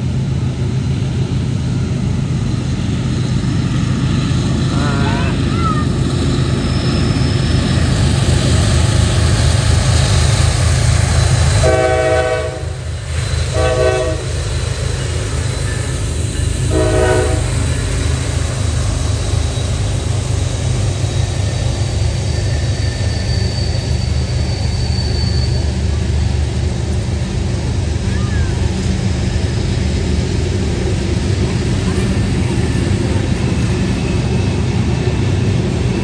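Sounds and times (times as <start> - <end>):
diesel locomotive rumble: 0.0 - 36.0
freight cars rolling on rails: 0.0 - 36.0
train air horn blasts: 11.6 - 12.9, 13.5 - 14.4, 16.7 - 17.7.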